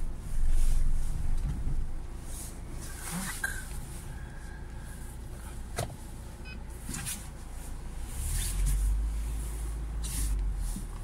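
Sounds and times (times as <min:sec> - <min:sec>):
car engine rumbling: 0:00.0 - 0:11.0.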